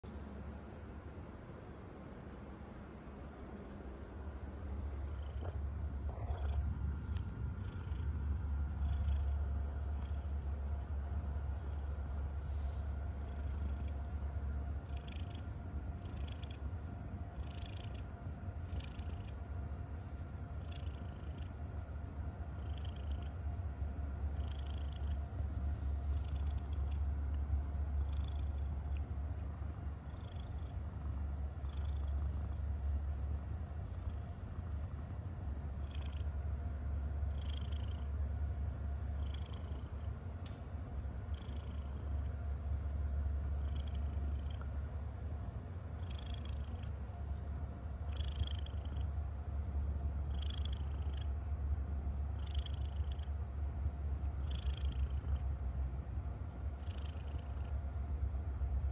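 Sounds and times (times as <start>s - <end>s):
cat purring: 2.2s - 58.9s.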